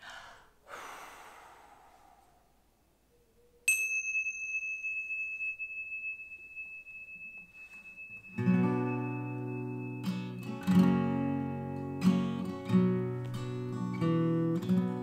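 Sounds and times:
hand cymbals ringing: 0:03.6 - 0:12.5
acoustic guitar strumming: 0:07.6 - 0:15.0.

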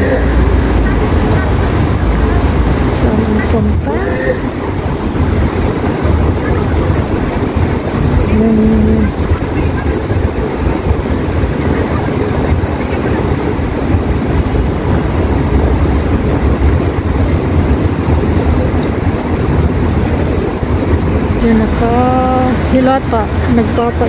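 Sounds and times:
loud low rumbling: 0:00.0 - 0:24.0.

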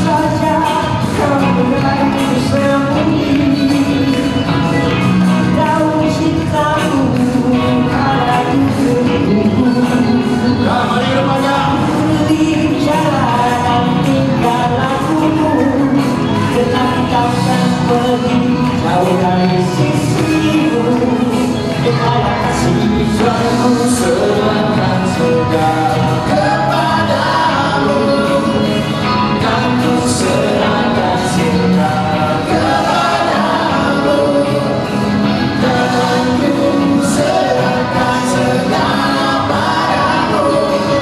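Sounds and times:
live band playing: 0:00.0 - 0:41.0
person singing: 0:00.0 - 0:41.0.

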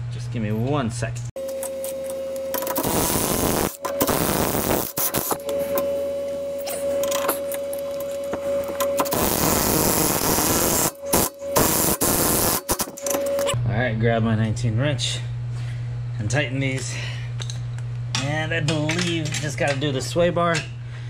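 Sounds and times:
cordless power wrench whirring: 0:01.5 - 0:05.5, 0:08.8 - 0:13.6.

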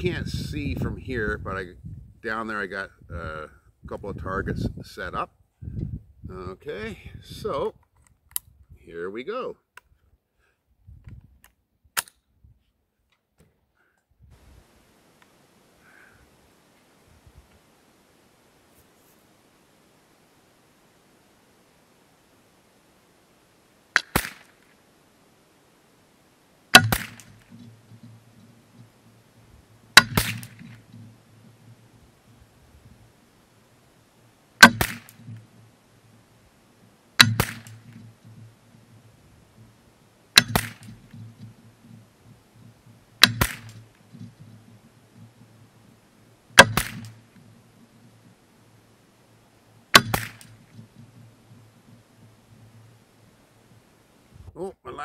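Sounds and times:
sharp crack: 0:23.9 - 0:24.8, 0:26.7 - 0:29.0, 0:29.8 - 0:31.9, 0:34.6 - 0:35.7, 0:37.2 - 0:38.6, 0:40.3 - 0:42.0, 0:43.1 - 0:45.5, 0:46.5 - 0:48.3, 0:49.9 - 0:52.0
rifle shots: 0:24.0 - 0:24.7, 0:26.7 - 0:28.3, 0:29.9 - 0:31.2, 0:34.6 - 0:35.5, 0:37.2 - 0:38.1, 0:40.3 - 0:41.2, 0:43.2 - 0:44.0, 0:46.6 - 0:47.3, 0:49.9 - 0:50.7.

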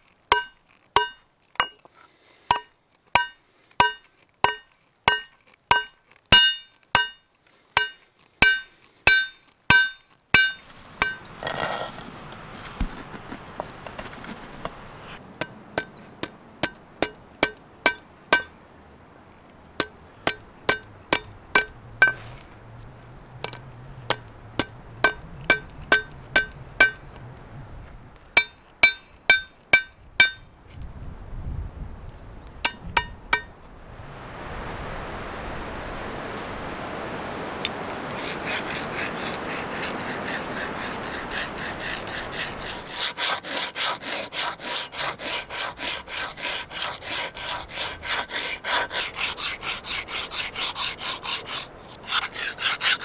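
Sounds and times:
hammer striking metal on anvil: 0:00.3 - 0:01.8, 0:02.5 - 0:07.2, 0:07.8 - 0:11.3, 0:16.6 - 0:18.6, 0:19.8 - 0:22.2, 0:23.4 - 0:27.0, 0:28.4 - 0:30.5
hissing rush: 0:33.6 - 0:43.0.

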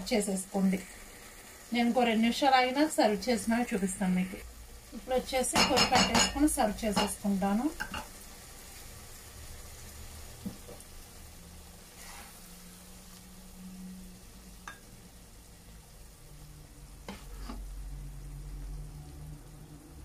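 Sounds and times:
faint sizzle: 0:00.0 - 0:20.0
spatula scraping thick curry: 0:12.0 - 0:12.5, 0:17.0 - 0:17.7.

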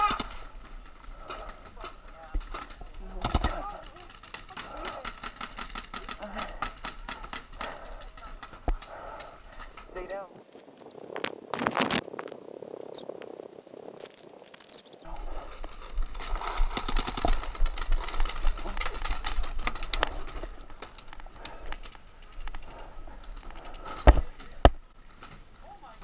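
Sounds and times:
paintball markers firing: 0:00.0 - 0:00.5, 0:03.2 - 0:08.5.

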